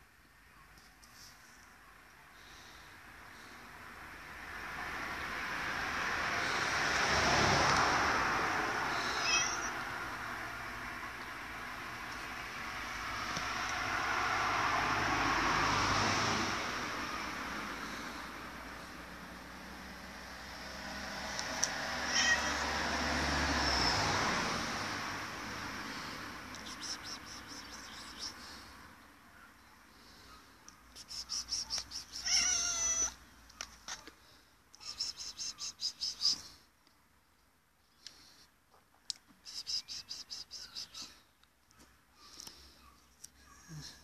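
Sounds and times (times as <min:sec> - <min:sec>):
vehicle passing on road: 0:02.3 - 0:36.8
cat meowing: 0:09.1 - 0:09.8, 0:22.1 - 0:22.7, 0:32.2 - 0:33.2.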